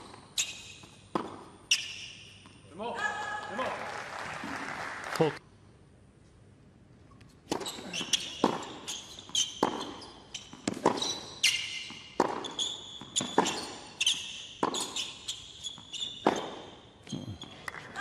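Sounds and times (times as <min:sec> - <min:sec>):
racquet striking tennis ball: 0:00.0 - 0:02.6, 0:07.5 - 0:16.8
sneakers squeaking on court: 0:00.0 - 0:02.6, 0:07.5 - 0:17.6
tennis ball bouncing: 0:00.0 - 0:02.6, 0:07.4 - 0:16.9.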